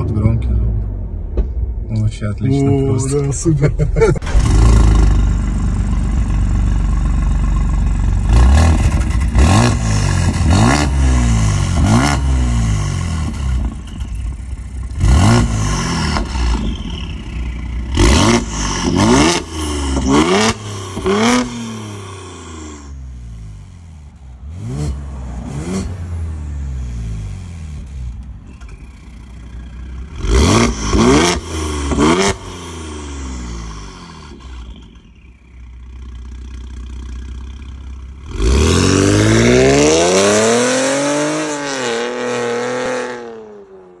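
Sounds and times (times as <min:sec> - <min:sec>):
car engine revving: 0:00.0 - 0:44.0
car accelerating away: 0:08.1 - 0:35.1, 0:37.7 - 0:44.0.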